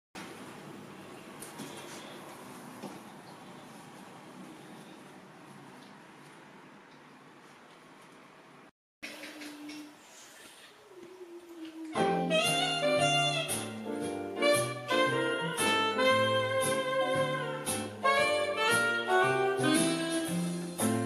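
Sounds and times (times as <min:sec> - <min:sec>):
jazz background music: 0:12.0 - 0:21.0.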